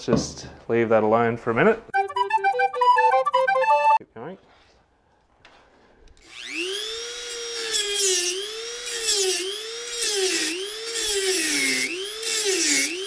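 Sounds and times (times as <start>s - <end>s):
rotary tool cutting metal: 6.2s - 13.0s.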